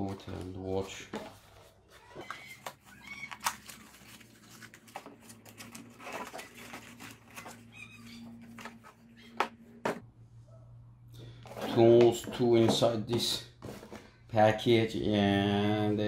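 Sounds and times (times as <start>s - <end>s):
cardboard box rustling: 0.2s - 9.1s.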